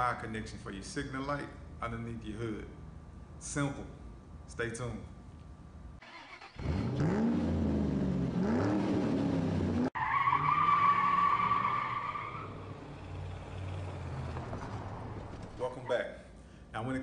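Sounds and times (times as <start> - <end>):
car engine revving: 6.1 - 15.6.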